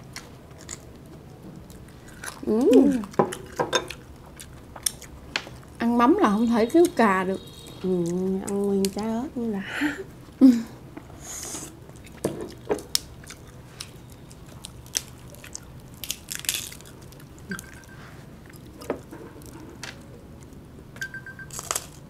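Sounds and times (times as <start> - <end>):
person chewing food: 0.1 - 0.9, 1.6 - 5.7, 11.6 - 19.6.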